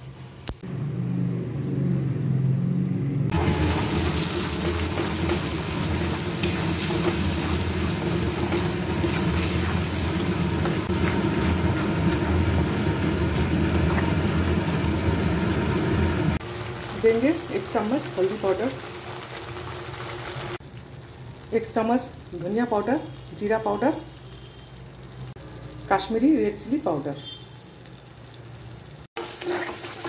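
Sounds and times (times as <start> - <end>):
paste sizzling in hot oil: 3.3 - 21.2, 27.3 - 30.0
metal spatula stirring: 3.4 - 15.6, 29.2 - 30.0.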